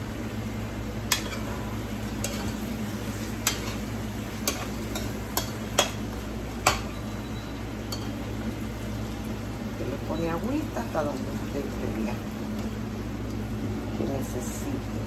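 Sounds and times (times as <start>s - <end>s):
frying sizzle: 0.0s - 15.0s
metal spoon clinking against pan: 3.4s - 3.8s, 4.4s - 6.0s, 6.6s - 6.9s.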